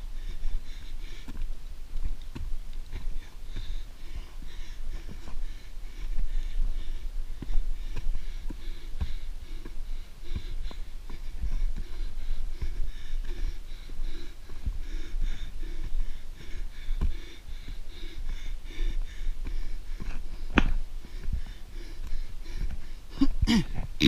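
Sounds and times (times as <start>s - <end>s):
runner breathing hard: 0.0s - 24.0s
footfall thumps on dirt: 20.0s - 21.6s.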